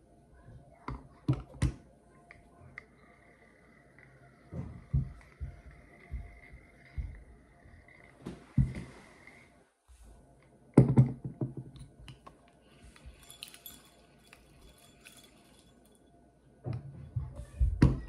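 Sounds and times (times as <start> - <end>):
metal reel parts clicking and rattling: 12.8 - 16.1.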